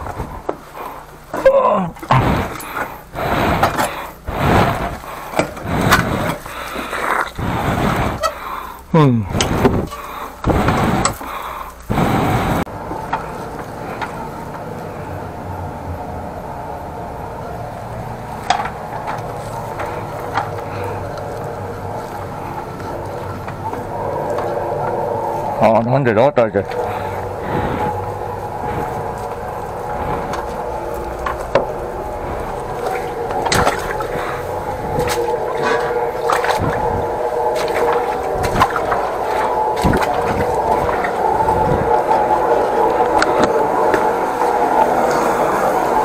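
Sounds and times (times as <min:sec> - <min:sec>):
sewer jetter engine running: 0:00.0 - 0:46.0
loud rushing bursts: 0:02.1 - 0:06.7, 0:07.4 - 0:08.3, 0:09.0 - 0:11.3, 0:11.9 - 0:12.7, 0:22.4 - 0:46.0.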